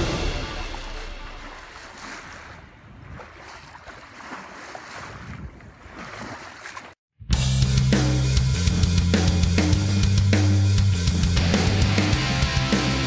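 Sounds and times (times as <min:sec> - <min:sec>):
drum-driven rock music: 0:00.0 - 0:01.7, 0:07.3 - 0:13.0
background music: 0:00.0 - 0:02.1, 0:07.3 - 0:13.0
waves washing: 0:00.0 - 0:07.0
wind buffeting microphone: 0:02.0 - 0:06.0.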